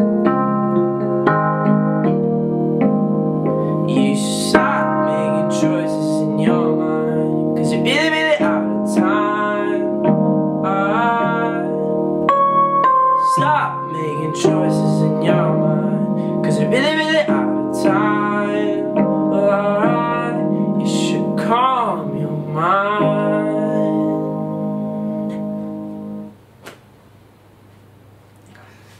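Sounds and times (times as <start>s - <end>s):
piano chords on keyboard: 0.0s - 26.4s
man singing wordless lines: 3.8s - 12.0s, 13.1s - 25.8s.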